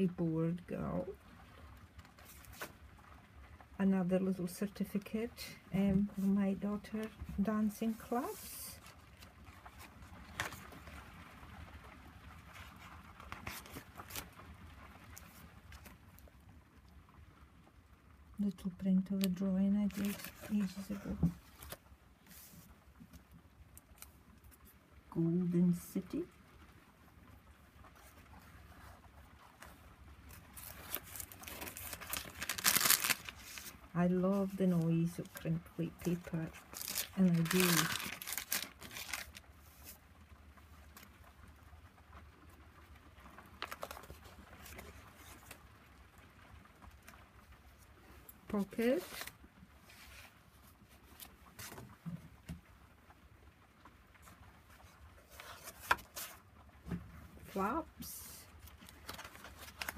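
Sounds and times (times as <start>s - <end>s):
rain on a shed roof: 0.4s - 4.4s, 8.2s - 19.4s, 21.4s - 34.1s, 36.5s - 59.9s
paper pages rustling: 2.0s - 2.8s, 5.9s - 11.0s, 12.4s - 14.5s, 19.2s - 23.3s, 27.9s - 40.0s, 43.2s - 45.6s, 46.8s - 52.6s, 54.2s - 56.4s, 58.5s - 59.9s
paper rustling and tapping: 30.5s - 33.8s, 36.2s - 40.0s, 54.8s - 57.0s.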